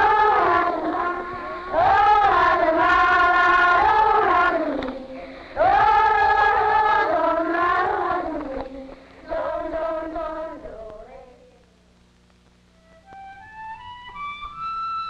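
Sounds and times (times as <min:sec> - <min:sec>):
slow chant-like singing: 0:00.0 - 0:11.8.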